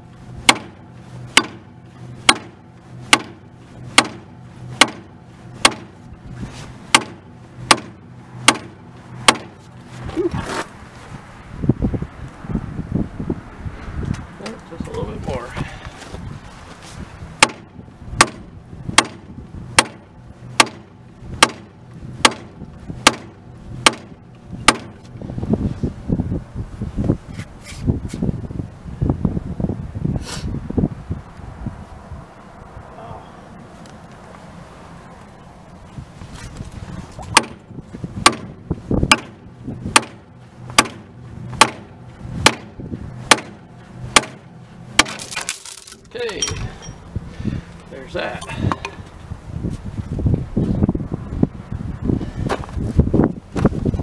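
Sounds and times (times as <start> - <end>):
hammer striking steel: 0.4 - 3.4, 4.0 - 5.9, 6.9 - 9.6, 17.4 - 17.6, 19.8 - 20.0, 43.3 - 44.4
sledge hammer striking steel: 0.4 - 6.0, 6.9 - 9.6, 17.4 - 25.0, 37.3 - 37.6, 38.2 - 42.7, 43.3 - 45.5
scraping and handling noises: 9.6 - 11.1, 15.5 - 17.1.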